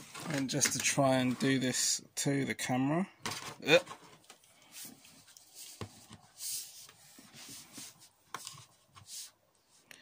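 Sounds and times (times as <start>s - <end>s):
plastic rubbing and scraping: 0.0s - 1.9s.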